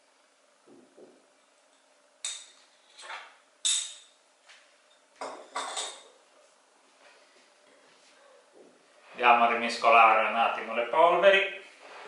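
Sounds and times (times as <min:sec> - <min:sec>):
ceramic dishes clinking: 0:02.2 - 0:04.2, 0:04.9 - 0:06.2.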